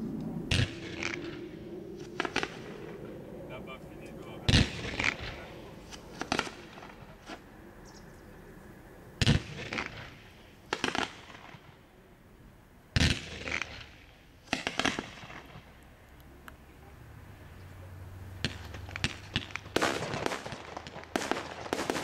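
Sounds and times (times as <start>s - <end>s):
fireworks bursting: 4.4s - 7.5s, 9.2s - 11.8s, 13.0s - 16.0s, 18.4s - 22.0s.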